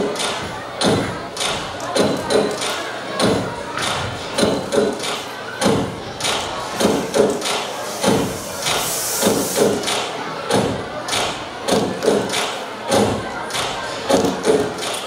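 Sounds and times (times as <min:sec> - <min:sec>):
fog machine hiss: 0:07.0 - 0:10.0.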